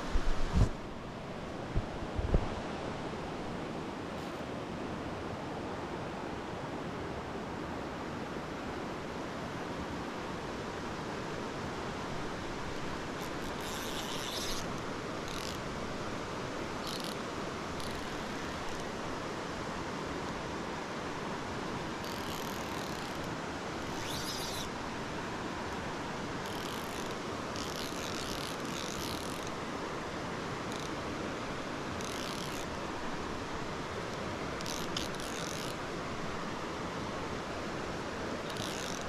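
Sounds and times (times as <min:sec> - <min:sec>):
mountain stream rushing: 0:00.0 - 0:39.0
fly reel ratcheting: 0:13.2 - 0:15.7, 0:16.8 - 0:18.9, 0:22.0 - 0:24.7, 0:26.4 - 0:29.6, 0:30.6 - 0:31.0, 0:31.9 - 0:32.8, 0:34.6 - 0:35.8, 0:38.4 - 0:39.0.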